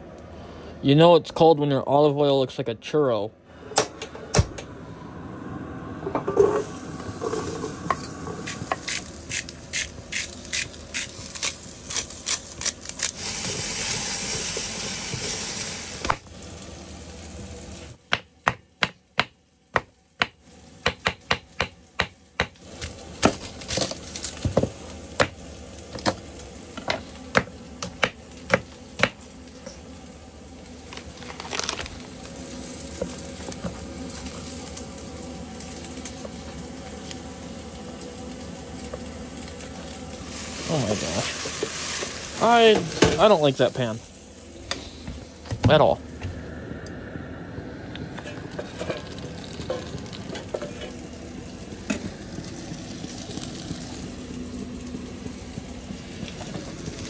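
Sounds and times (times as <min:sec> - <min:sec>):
knife chopping on wooden board: 0:18.1 - 0:22.6.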